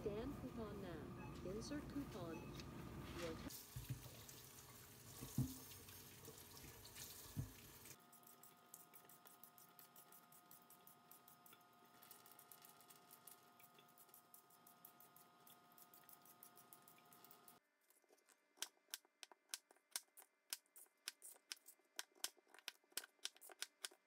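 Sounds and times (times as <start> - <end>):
tap water running into a sink: 3.5 - 8.0.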